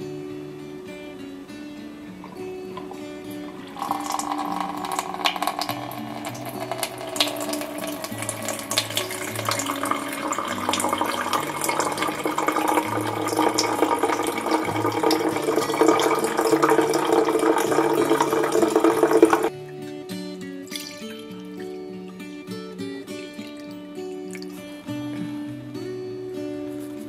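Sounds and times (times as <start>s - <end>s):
soft background music: 0.0s - 27.0s
water running from tap: 2.2s - 19.5s.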